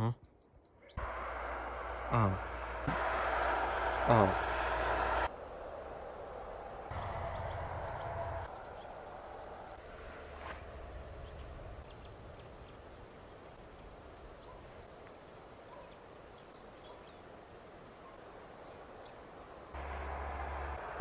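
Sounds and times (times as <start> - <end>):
steady low hiss: 1.0 - 21.0
low rumble: 4.4 - 12.5.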